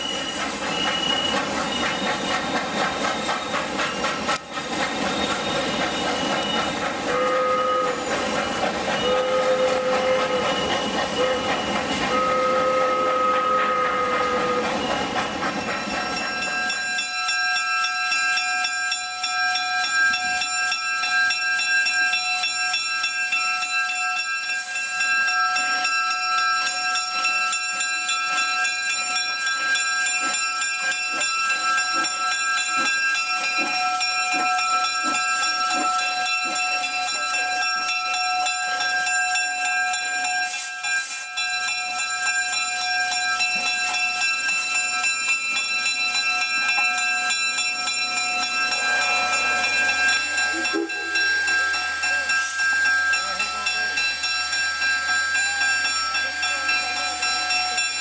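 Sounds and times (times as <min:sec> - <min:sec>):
steam locomotive hissing: 0:00.0 - 0:58.0
steady high tones: 0:13.7 - 0:58.0.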